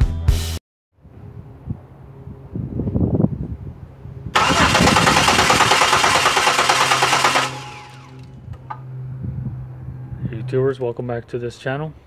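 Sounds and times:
car engine cranking on starter: 4.4 - 8.3.

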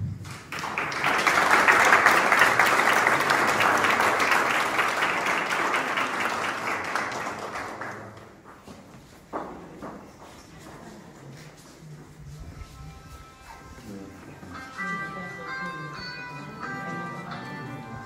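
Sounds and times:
audience applauding: 0.2 - 8.5.

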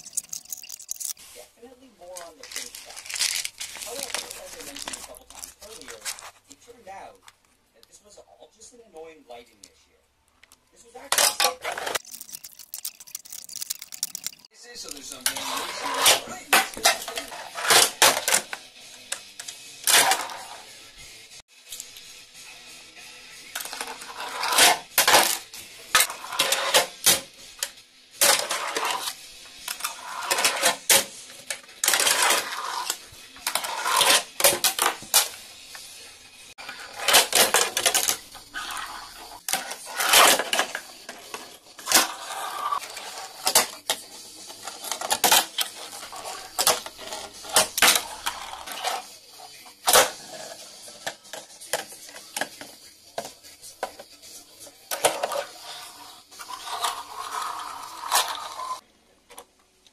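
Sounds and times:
wheels rolling and scraping: 11.4 - 18.7, 19.8 - 20.9, 23.5 - 27.0, 28.2 - 52.6, 54.9 - 58.8.

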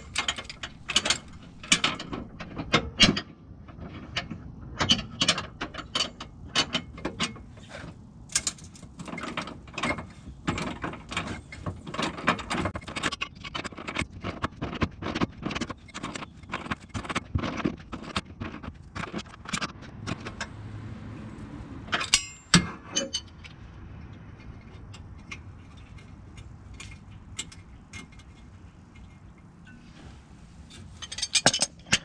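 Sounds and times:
hand ratchet clicking: 0.1 - 2.7.

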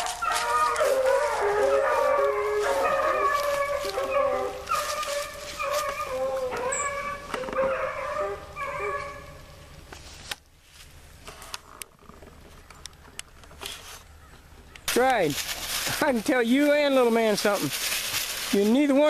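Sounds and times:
hounds baying: 0.0 - 9.7.

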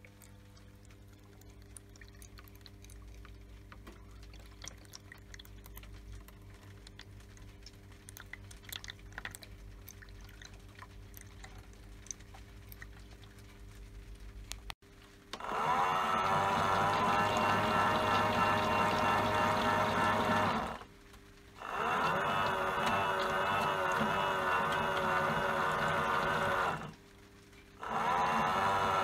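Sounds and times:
water trickling and dripping: 0.0 - 15.3
faint steady hum: 0.0 - 29.0.

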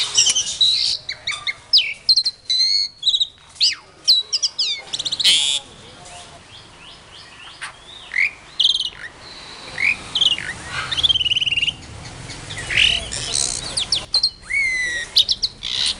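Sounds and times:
birds chirping and trilling: 0.0 - 15.9
drawn-out bird whistle: 7.6 - 11.8, 13.8 - 15.9.

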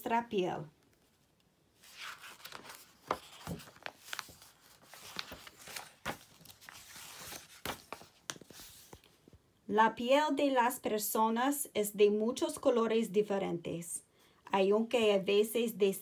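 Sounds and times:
book pages flipping: 0.8 - 9.4.

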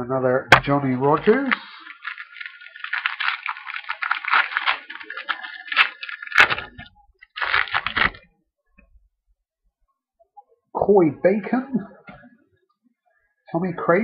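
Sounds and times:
sharp crack: 0.5 - 8.3
card pack crinkling and rustling: 0.6 - 8.3.

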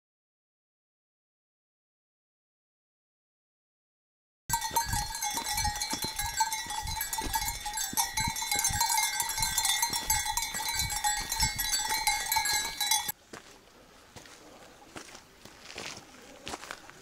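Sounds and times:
sheep bells ringing: 4.5 - 13.2.

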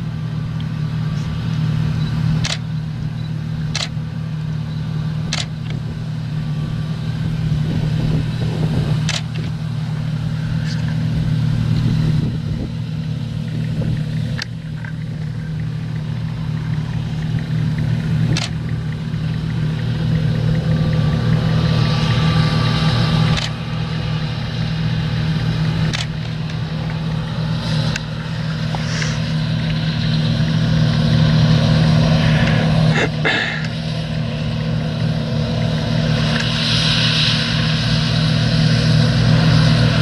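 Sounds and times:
harvester and tractor engines droning: 0.0 - 40.0
sharp clicks: 2.4 - 2.7, 3.7 - 4.0, 5.3 - 5.8, 9.0 - 9.5, 18.3 - 18.8, 23.3 - 23.6, 25.9 - 26.6.

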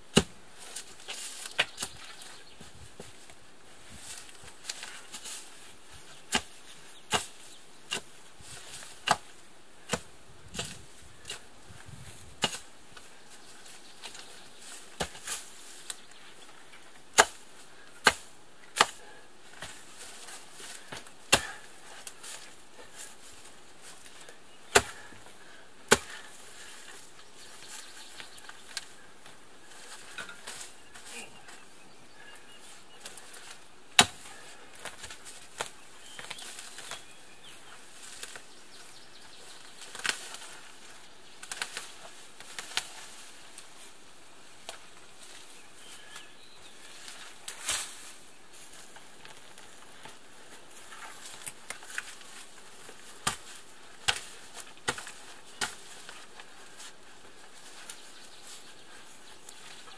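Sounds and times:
tool chopping into roots and turf: 0.1 - 2.0, 6.2 - 11.4, 12.2 - 13.1, 14.0 - 16.0, 17.1 - 23.2, 23.9 - 29.0, 33.0 - 37.0, 47.0 - 48.1, 50.9 - 56.9.

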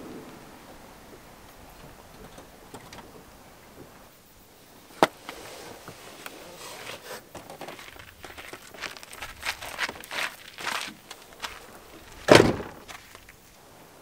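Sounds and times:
flip-flops scuffing on gravel: 6.2 - 13.4.

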